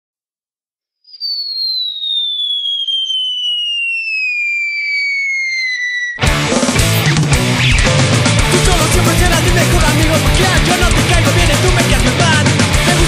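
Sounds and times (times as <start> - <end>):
high whistle sliding down: 1.0 - 6.3
punk rock band playing: 6.2 - 13.0.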